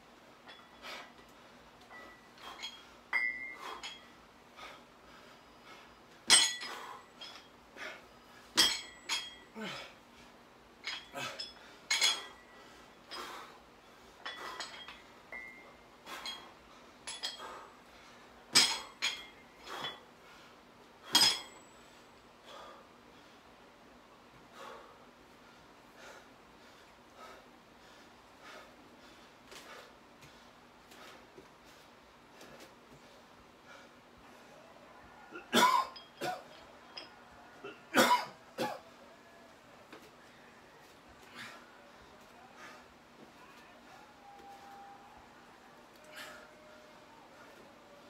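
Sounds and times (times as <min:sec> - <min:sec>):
dumbbell plates clinking: 0:00.4 - 0:04.8, 0:05.7 - 0:10.0, 0:10.7 - 0:17.8, 0:18.5 - 0:20.1, 0:21.0 - 0:22.0, 0:35.4 - 0:37.4.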